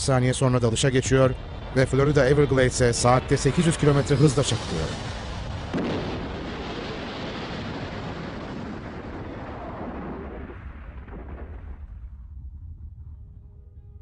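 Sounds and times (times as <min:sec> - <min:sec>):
crash explosion rumbling roar: 0:00.5 - 0:13.4.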